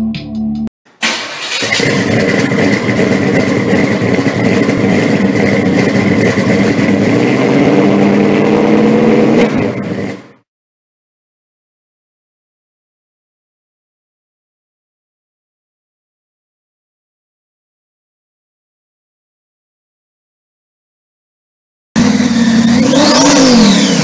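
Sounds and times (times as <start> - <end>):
car engine starting and running: 0.9 - 10.5, 22.0 - 24.0.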